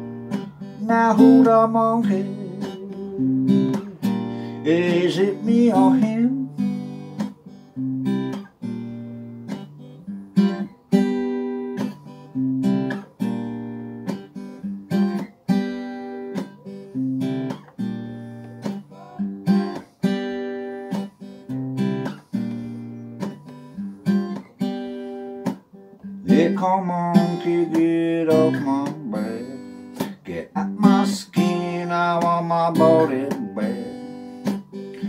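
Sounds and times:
acoustic guitar strumming chords: 0:00.0 - 0:35.0.

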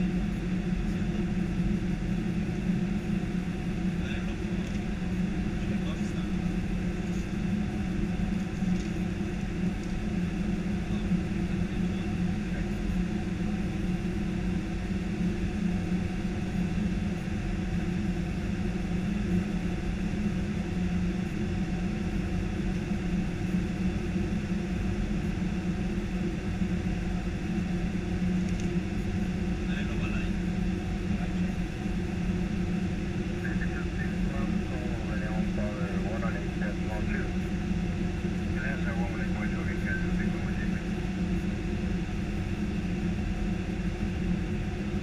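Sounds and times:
low even hum: 0:00.0 - 0:45.0.

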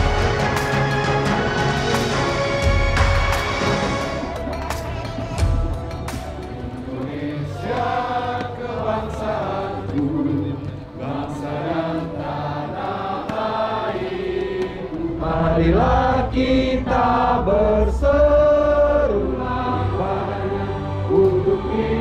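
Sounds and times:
group of voices chanting: 0:06.8 - 0:22.0.

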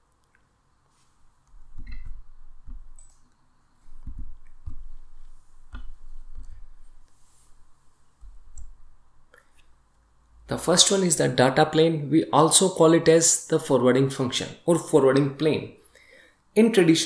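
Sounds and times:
soft low thumps: 0:01.6 - 0:03.0, 0:03.9 - 0:06.9.

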